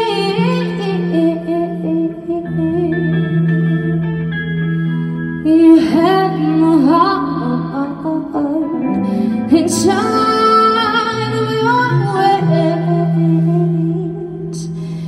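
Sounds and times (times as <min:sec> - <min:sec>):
electric bass: 0:00.0 - 0:15.0
electric guitar: 0:00.0 - 0:15.0
woman singing into a microphone: 0:00.0 - 0:15.0.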